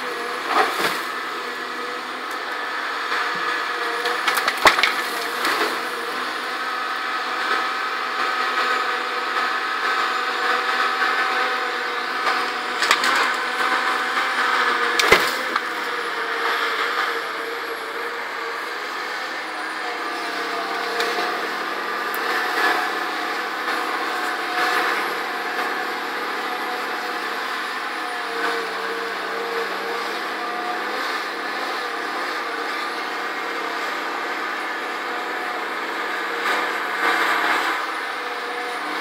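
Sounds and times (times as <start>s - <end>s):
diesel engine under load: 0.0s - 39.0s
wood snapping: 4.2s - 5.3s, 12.8s - 13.4s, 15.0s - 15.6s.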